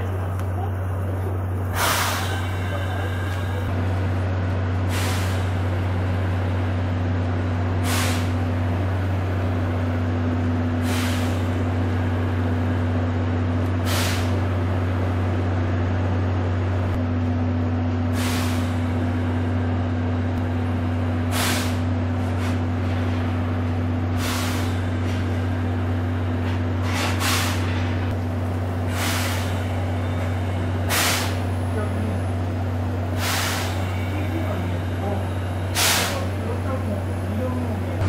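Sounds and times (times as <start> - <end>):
diesel locomotive idling: 0.0 - 38.0
compressed air hisses: 30.9 - 31.4, 33.2 - 33.8, 35.8 - 36.2.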